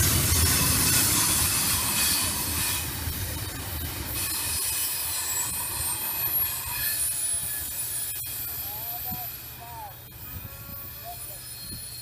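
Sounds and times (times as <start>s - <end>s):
train rumbling on rails: 0.0s - 12.0s
high-pitched wheel squeal: 4.2s - 9.4s, 10.0s - 12.0s.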